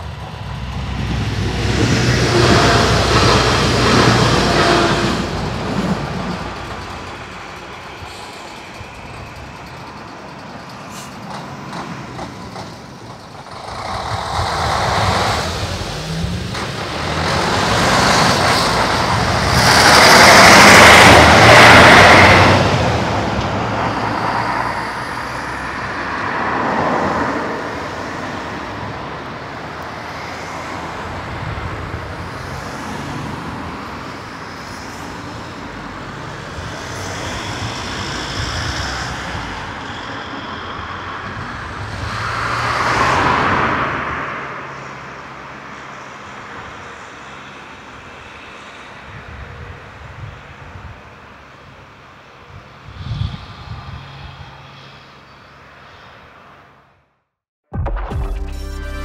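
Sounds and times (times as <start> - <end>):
heavy truck passing: 0.0 - 51.3
cars passing: 0.0 - 56.9.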